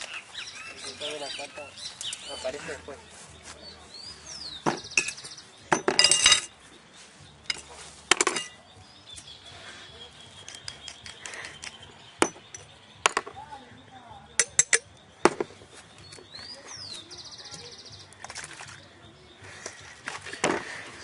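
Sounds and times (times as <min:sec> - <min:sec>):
glass clinking: 0:05.0 - 0:06.5, 0:07.5 - 0:08.6, 0:12.2 - 0:12.7, 0:14.4 - 0:14.9.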